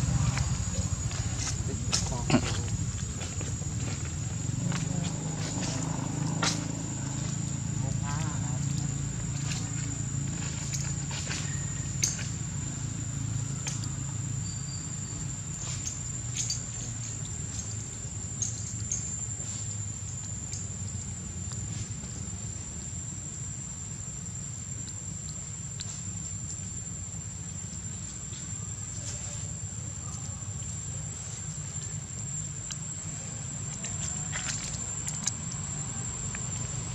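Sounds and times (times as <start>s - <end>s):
low rumble: 0.0s - 15.4s
high-pitched insect drone: 0.0s - 24.7s
faint ticks: 15.6s - 23.0s, 24.7s - 36.9s.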